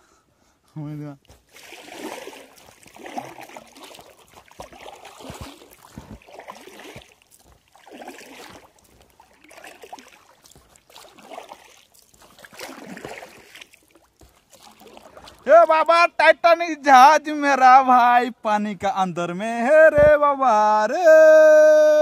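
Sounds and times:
paddle splashing in water: 1.2s - 16.0s
water dripping: 1.2s - 16.0s.

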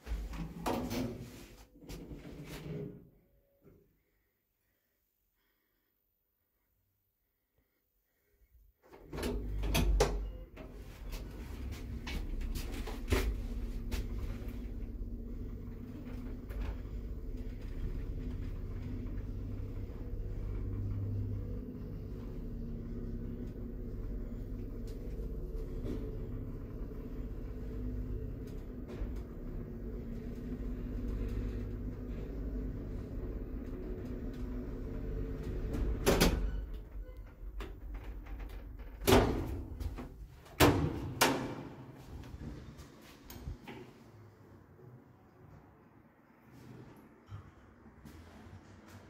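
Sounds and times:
lift doors sliding open: 9.0s - 44.5s, 46.4s - 49.0s
lift car humming: 10.7s - 39.0s.

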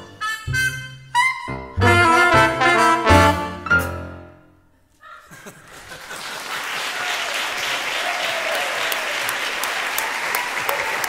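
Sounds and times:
audience applause: 5.6s - 11.0s.

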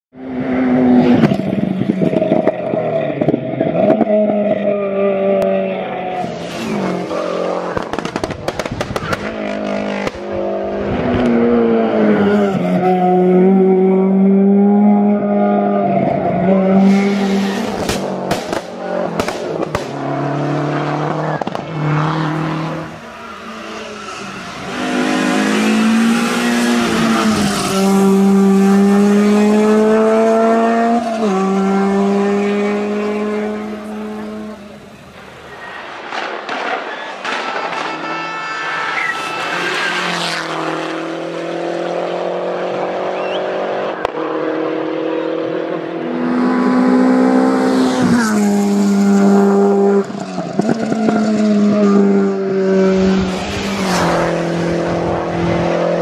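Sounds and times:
race car engine at full throttle: 0.1s - 56.0s
sharp cracks from car: 7.7s - 9.4s, 17.8s - 20.0s, 36.0s - 38.1s.

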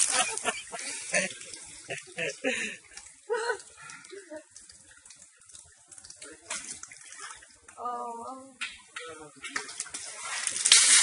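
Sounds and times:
water running and splashing: 0.0s - 11.0s.

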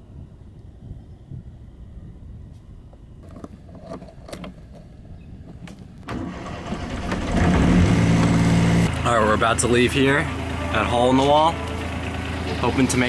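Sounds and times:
boat engine starting and idling: 6.0s - 13.0s.

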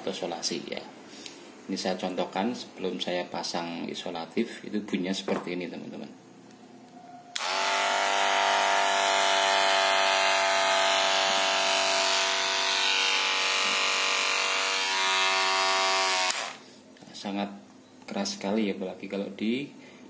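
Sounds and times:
hair clipper buzzing: 7.3s - 16.7s.

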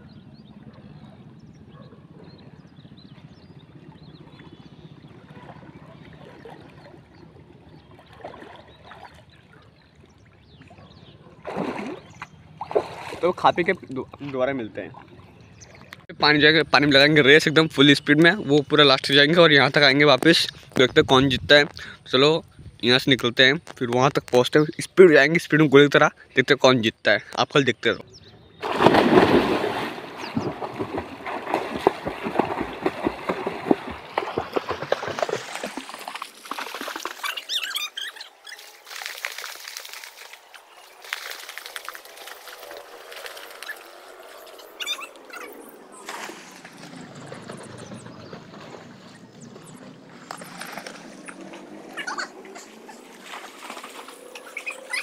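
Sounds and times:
loud dive splash: 11.4s - 13.4s, 28.6s - 37.2s
swimmers splashing: 28.6s - 55.0s
water lapping against pool edge: 28.6s - 55.0s.

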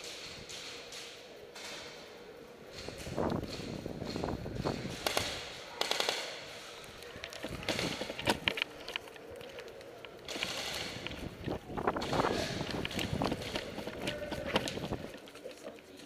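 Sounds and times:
airsoft guns firing bursts: 3.5s - 6.8s, 7.5s - 8.4s, 10.2s - 11.3s, 12.0s - 15.1s.

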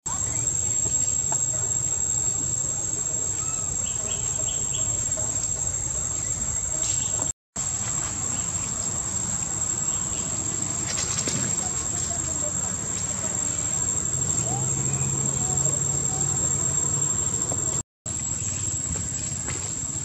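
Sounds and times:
insects droning: 0.1s - 20.0s.

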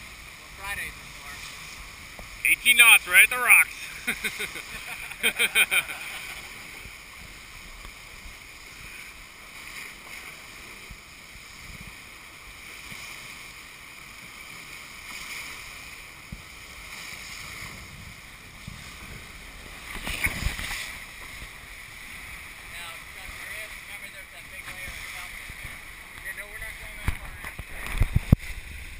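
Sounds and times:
water rushing past boat hulls: 0.0s - 28.9s
wind on microphone: 10.8s - 12.0s, 16.2s - 22.3s, 27.0s - 28.9s.

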